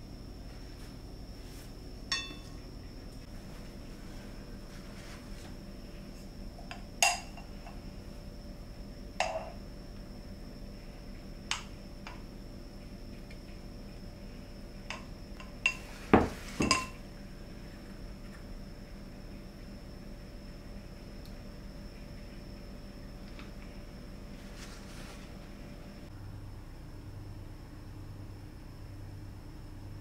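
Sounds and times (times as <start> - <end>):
metal spoon clinking on glass: 2.1 - 2.6.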